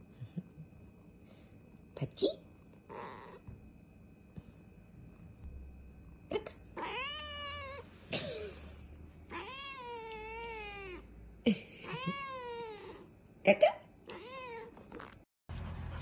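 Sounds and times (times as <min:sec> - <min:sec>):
cat meowing: 0:06.8 - 0:07.9, 0:09.3 - 0:11.1, 0:11.8 - 0:13.1, 0:14.0 - 0:15.1.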